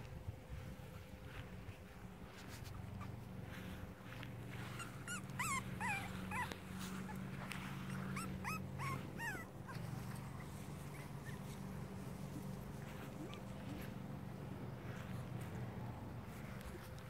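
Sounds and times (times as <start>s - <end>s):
steady low hum: 0.0s - 17.0s
puppies yipping and squeaking: 2.4s - 3.3s, 4.4s - 14.0s.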